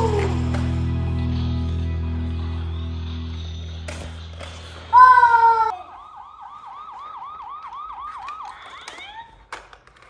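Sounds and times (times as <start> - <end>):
toy electronic siren yelping: 6.9 - 9.5.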